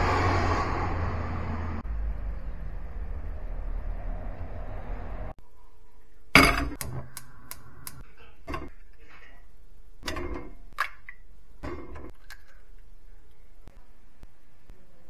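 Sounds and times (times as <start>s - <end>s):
street background rumble: 0.0s - 5.4s.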